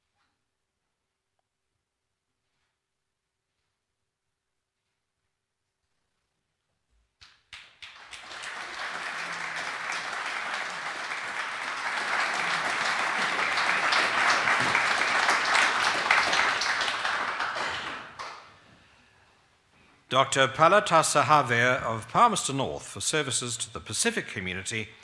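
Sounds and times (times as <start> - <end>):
audience applauding: 7.5 - 18.6.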